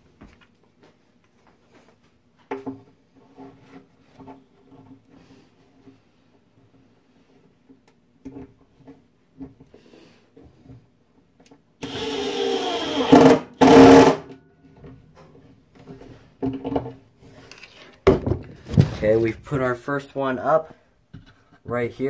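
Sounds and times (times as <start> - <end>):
power drill driving a screw: 11.8 - 14.2.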